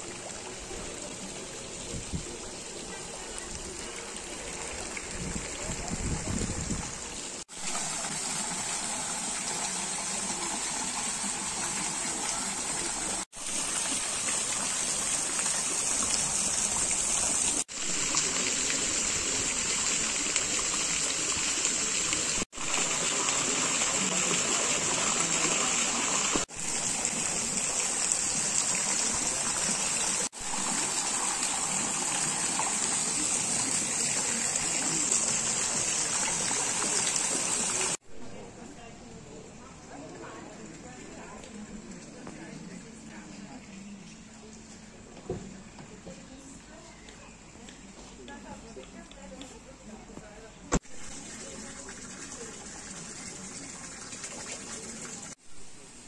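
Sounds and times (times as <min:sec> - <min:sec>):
fountain water splashing: 0:00.0 - 0:38.0, 0:50.9 - 0:55.4.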